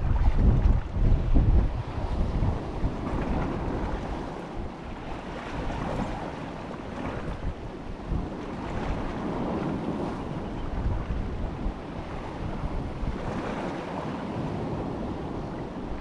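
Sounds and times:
sea waves washing: 0.0 - 16.0
wind buffeting microphone: 0.0 - 16.0.

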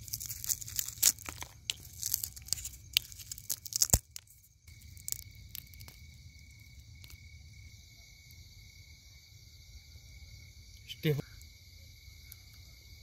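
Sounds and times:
prawn shell cracking: 0.0 - 7.2
crickets chirring: 0.0 - 13.0.

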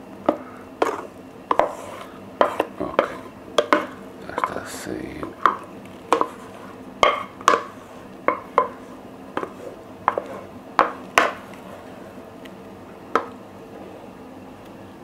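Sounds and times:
utensil knocking against cookware: 7.0 - 7.7, 10.8 - 11.4.

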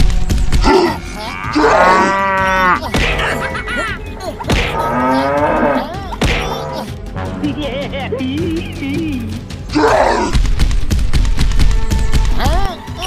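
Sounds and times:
cow mooing: 0.9 - 2.8, 4.8 - 5.9.

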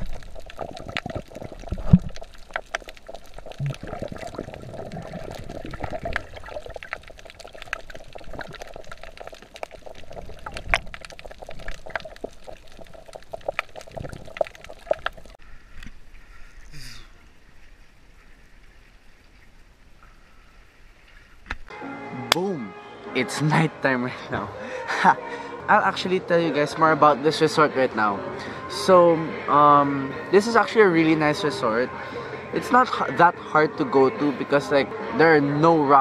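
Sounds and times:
small sharp clicks and crackles: 0.0 - 4.5, 5.3 - 16.0
water sloshing and bubbling: 0.0 - 21.7.

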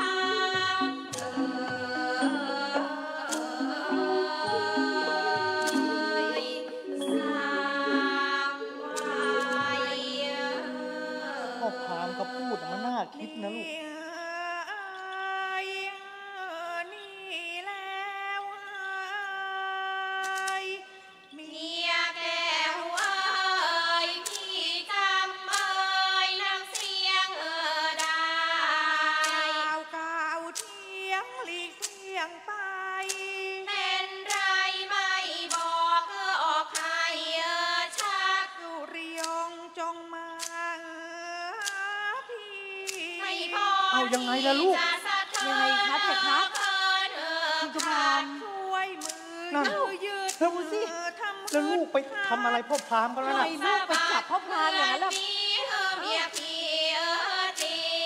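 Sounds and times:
woman singing ornamented melody: 0.0 - 12.0, 13.1 - 23.9, 39.0 - 52.4.

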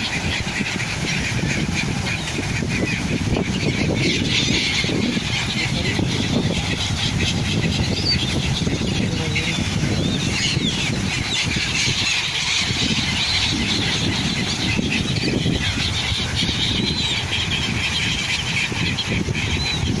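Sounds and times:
small waves lapping shore: 0.0 - 7.8
gulls calling: 0.0 - 20.0
wind rushing: 0.0 - 20.0.

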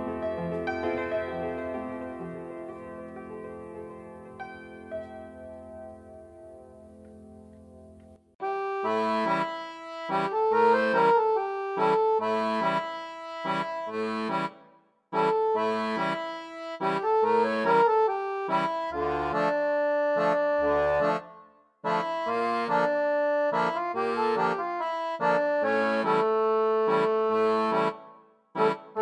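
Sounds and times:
lively accordion music: 8.4 - 29.0.

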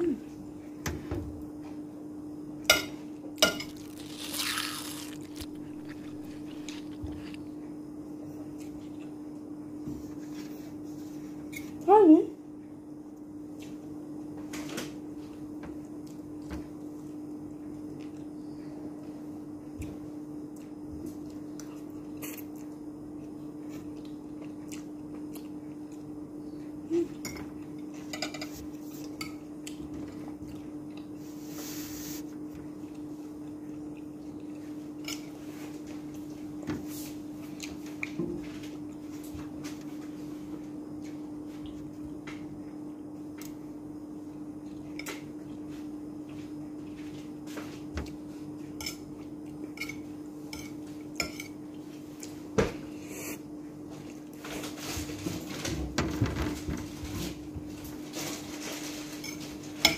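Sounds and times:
cutlery clinking on plate: 2.7 - 3.8, 28.1 - 28.6.

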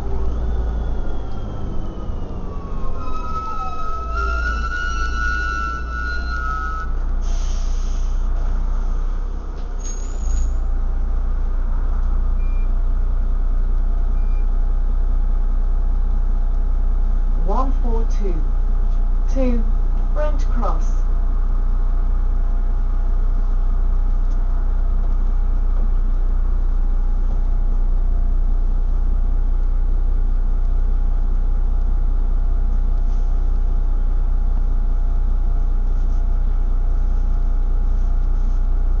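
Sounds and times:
steady tones: 0.0 - 7.0
bus engine drone: 0.0 - 39.0.

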